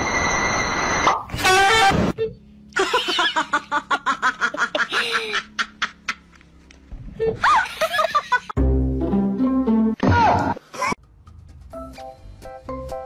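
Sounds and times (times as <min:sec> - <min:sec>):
person laughing: 0:02.8 - 0:06.4, 0:07.2 - 0:08.6.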